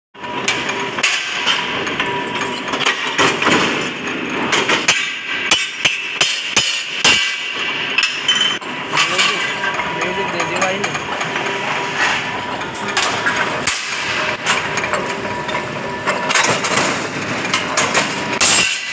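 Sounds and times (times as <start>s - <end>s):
power press shearing steel: 0.3s - 18.9s.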